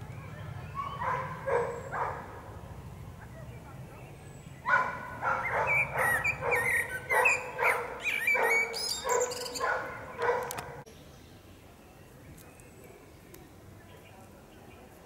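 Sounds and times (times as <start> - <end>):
birds chirping: 0.0 - 15.0
dog barking: 0.8 - 2.4, 4.6 - 10.8.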